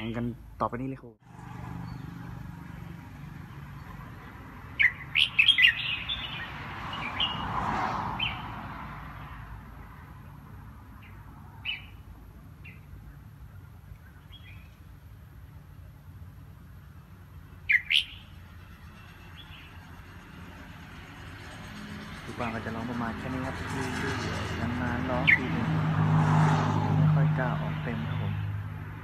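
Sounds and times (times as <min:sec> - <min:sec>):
bird giving sharp chirps: 0:04.7 - 0:07.5, 0:11.0 - 0:13.2, 0:17.5 - 0:18.4.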